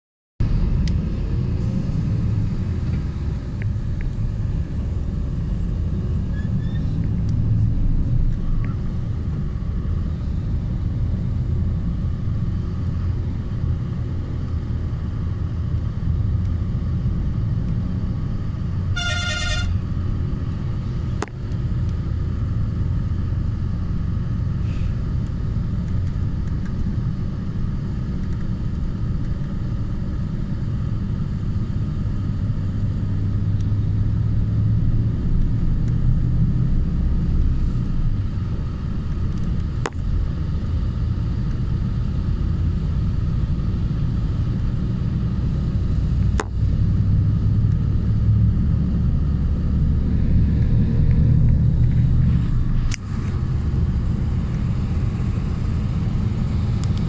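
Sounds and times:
road vehicle rumble: 0.4s - 57.0s
vehicle horn toot: 18.9s - 19.8s.

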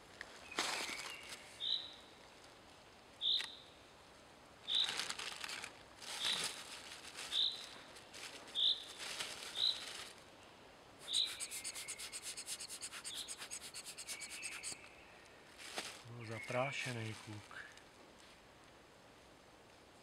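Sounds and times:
plastic bag rustling: 0.4s - 1.5s, 4.7s - 10.3s, 15.5s - 16.3s
rapid even ticks: 11.0s - 14.8s
bird short high call: 11.0s - 14.9s.

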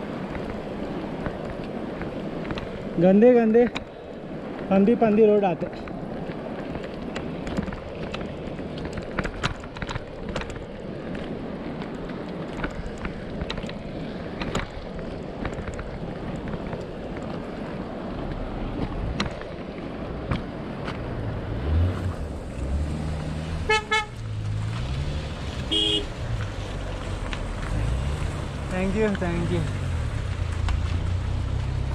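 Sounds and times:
bicycle rolling on dirt road: 0.0s - 31.9s
wind: 0.0s - 31.9s
motor vehicle engine: 12.0s - 31.9s
car horn toot: 23.6s - 24.2s, 25.7s - 26.1s.

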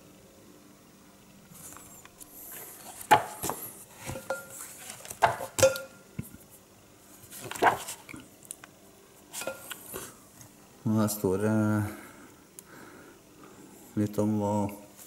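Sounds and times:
book pages turning: 1.5s - 5.6s, 7.2s - 8.2s
paper rustling: 1.6s - 5.6s, 7.2s - 8.1s
book taps and knocks: 3.1s - 4.2s, 5.2s - 5.7s.

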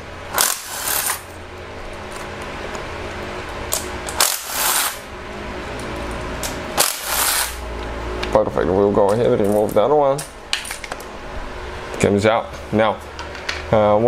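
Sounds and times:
steady hum: 0.0s - 14.0s
metal tools clinking and rattling: 9.3s - 9.9s.

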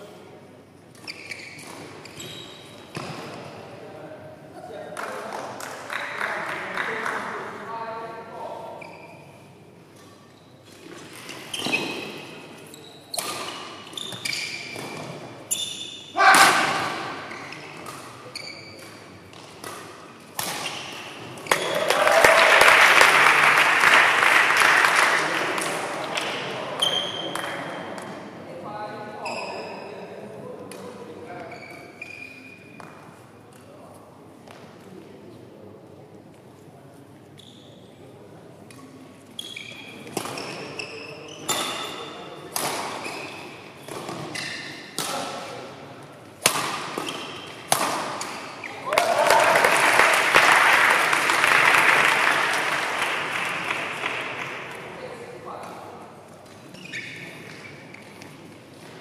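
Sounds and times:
shoes squeaking on court: 0.9s - 3.6s, 8.7s - 16.2s, 16.8s - 21.8s, 29.2s - 30.0s, 31.3s - 33.1s, 37.3s - 37.9s, 38.8s - 42.3s, 42.9s - 45.0s, 46.9s - 48.8s, 56.4s - 59.0s
racket hitting shuttlecock: 13.1s - 15.3s, 18.8s - 21.8s, 41.5s - 45.6s, 46.4s - 48.5s
spectators applauding and cheering: 21.5s - 25.7s, 48.8s - 54.5s.

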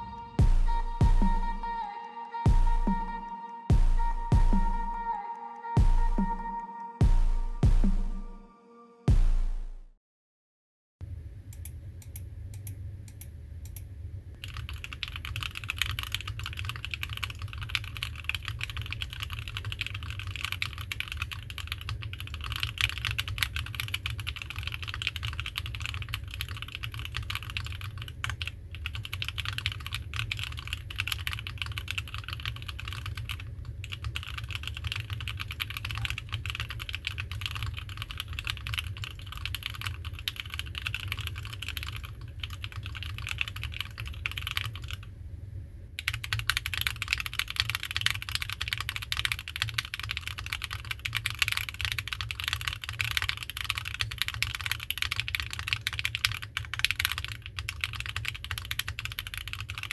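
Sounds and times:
fast typing on mechanical keyboard: 14.4s - 45.1s, 46.0s - 59.9s.

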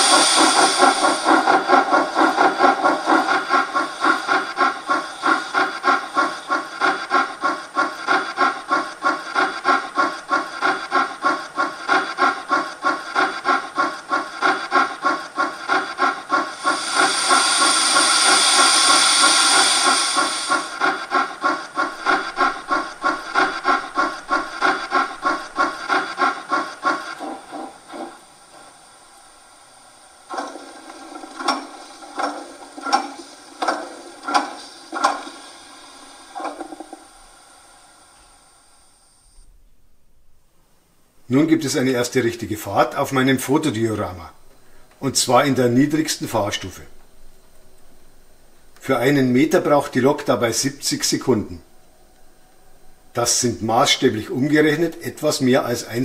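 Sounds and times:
loud steam hiss: 0.0s - 39.4s
model steam locomotive chuffing: 0.0s - 39.4s, 41.3s - 47.0s, 48.2s - 56.0s.

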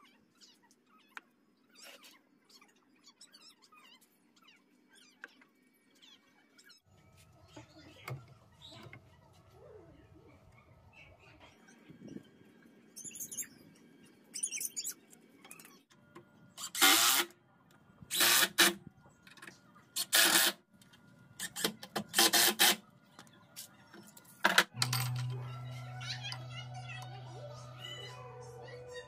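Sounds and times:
steady low hum: 24.8s - 29.0s.

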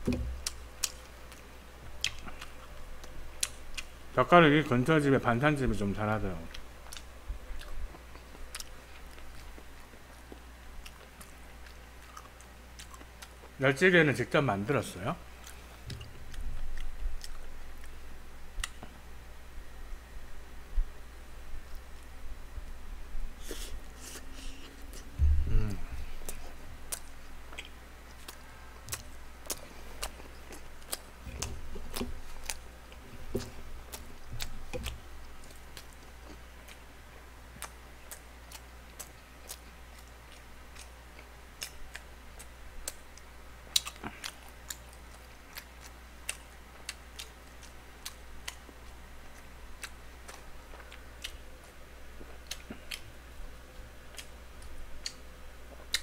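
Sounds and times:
close chewing: 0.4s - 3.9s, 6.4s - 13.6s, 15.3s - 18.0s, 23.4s - 56.0s
low thumps: 25.2s - 26.1s.

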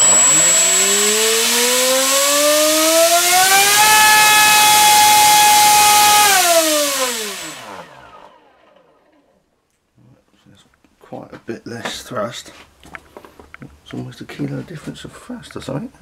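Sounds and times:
propeller wash rushing: 0.0s - 7.5s
electric motor whining: 0.0s - 8.4s.

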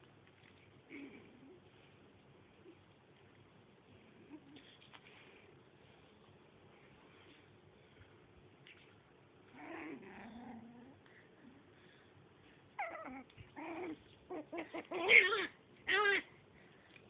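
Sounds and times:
dog growling: 9.5s - 11.1s, 12.8s - 16.2s
dog crying: 12.8s - 16.3s.

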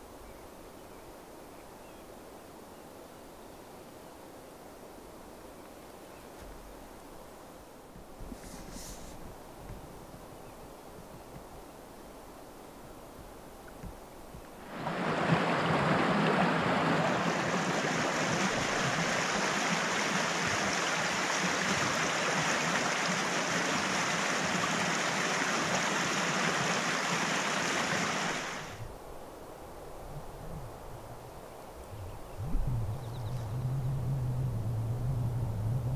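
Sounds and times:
creek rushing: 14.5s - 28.9s.

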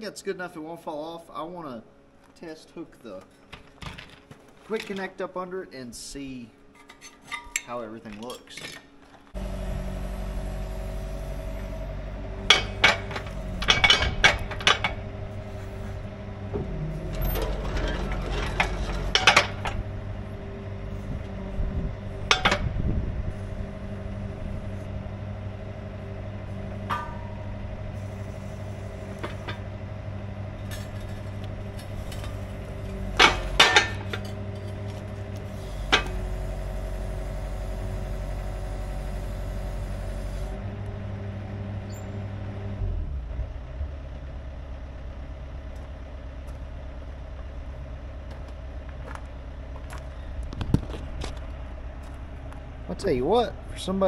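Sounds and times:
metal clanks of steel on steel: 6.8s - 8.9s, 12.4s - 16.1s, 17.1s - 20.0s, 22.2s - 22.7s, 26.6s - 29.7s, 30.6s - 36.3s
excavator engine running: 9.2s - 54.0s.

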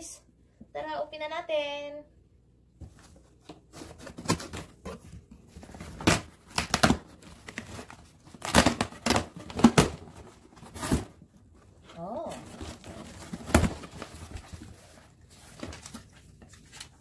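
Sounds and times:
packing tape ripping: 5.8s - 11.2s.

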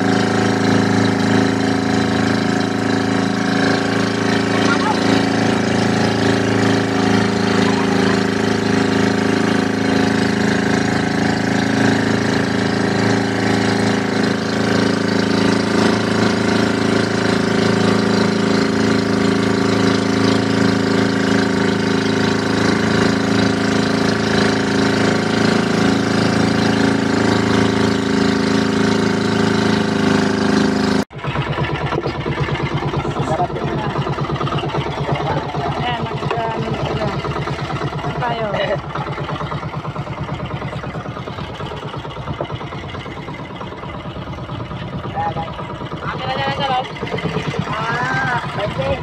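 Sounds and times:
boat engine droning: 0.0s - 49.0s.

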